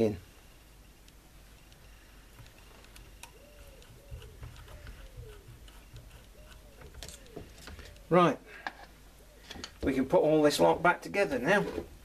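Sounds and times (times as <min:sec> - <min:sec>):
faint clicks and taps on ball bearing: 0:01.0 - 0:08.8.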